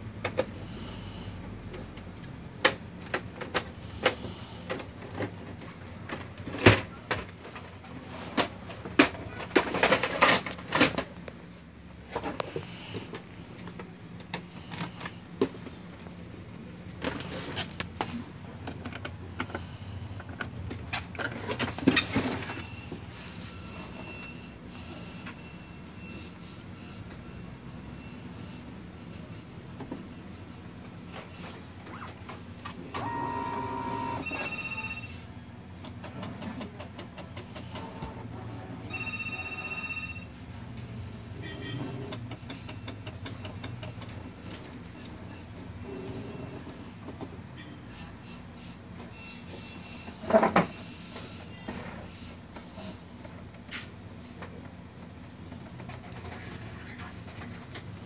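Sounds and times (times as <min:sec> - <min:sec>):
printer motors whirring: 0:20.8 - 0:39.4, 0:40.8 - 0:54.7.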